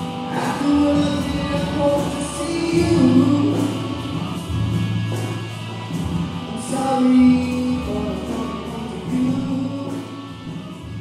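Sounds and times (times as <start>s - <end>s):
electric guitars: 0.0s - 11.0s
man singing lead: 0.1s - 4.2s, 6.4s - 10.8s.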